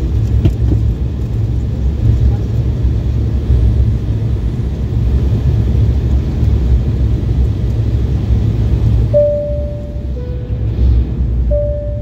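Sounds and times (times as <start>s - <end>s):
airliner cabin engine rumble: 0.0s - 12.0s
cabin chime tone: 9.2s - 10.6s, 11.5s - 12.0s.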